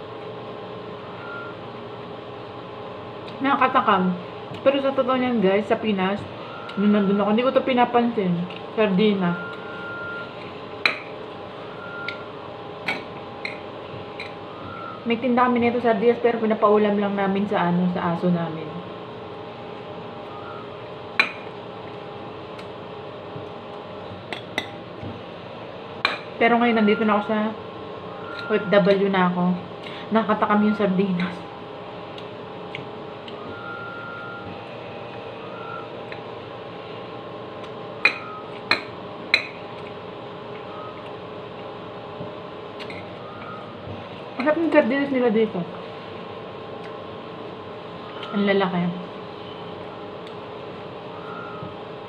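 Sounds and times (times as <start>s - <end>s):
low steady hum: 0.0s - 52.0s.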